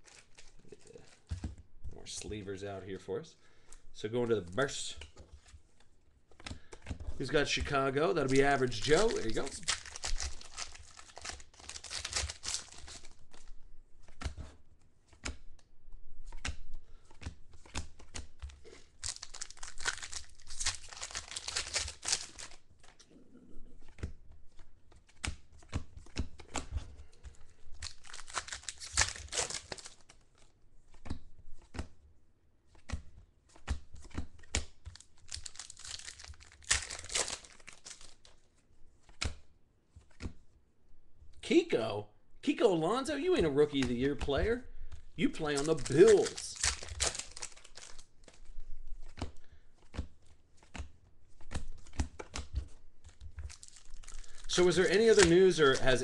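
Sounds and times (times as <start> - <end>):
cards being handled: 0.0 - 23.1, 23.8 - 32.0, 32.7 - 40.5, 43.1 - 56.0
foil wrappers tearing and crinkling: 8.1 - 13.5, 18.9 - 22.7, 27.7 - 30.2, 34.9 - 38.3, 45.3 - 48.4, 53.1 - 56.0.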